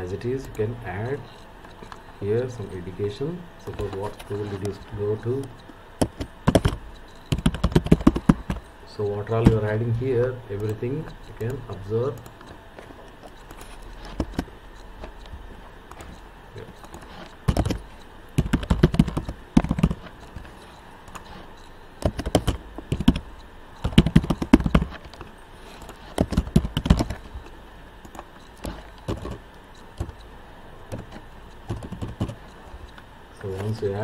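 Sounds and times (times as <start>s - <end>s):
typing on keyboard: 3.7s - 9.6s, 13.2s - 14.5s, 15.9s - 21.4s, 22.0s - 27.4s, 28.0s - 29.4s, 30.9s - 32.5s.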